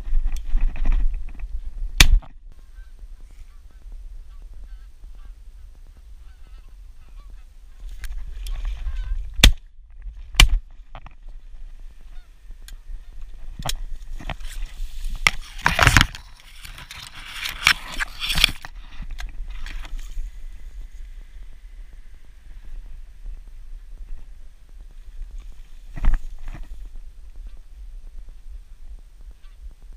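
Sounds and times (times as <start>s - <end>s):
wind rumble on microphone: 0.0s - 29.9s
geese honking: 2.6s - 9.3s, 12.0s - 13.3s
rustling and clicks: 12.6s - 21.0s.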